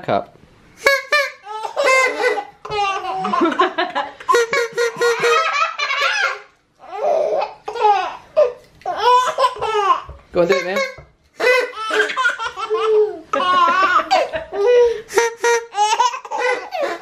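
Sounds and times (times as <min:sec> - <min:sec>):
baby belly-laughing: 0:00.8 - 0:17.0.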